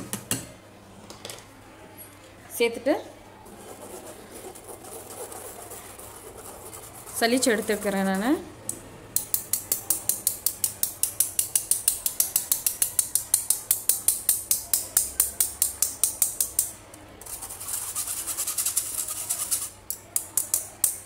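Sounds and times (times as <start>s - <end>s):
whisk scraping against mesh sieve: 3.4s - 8.4s, 17.2s - 20.6s.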